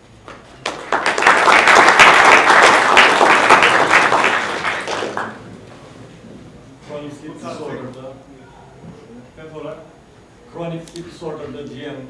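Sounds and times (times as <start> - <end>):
audience applause: 0.6 - 5.5.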